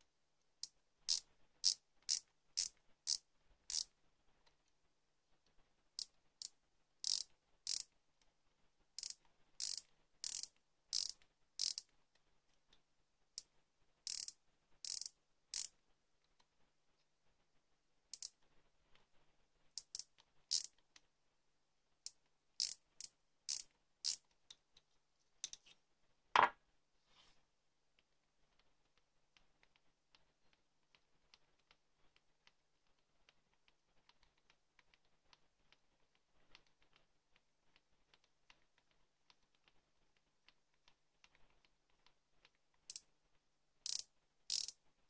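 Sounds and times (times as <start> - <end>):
micrometer ratchet clicking: 1.1 - 3.9, 7.0 - 7.9, 9.0 - 11.9, 14.1 - 15.7, 19.8 - 20.7, 22.6 - 22.8, 23.5 - 24.2, 43.9 - 44.7
knock on wooden table: 26.4 - 26.6.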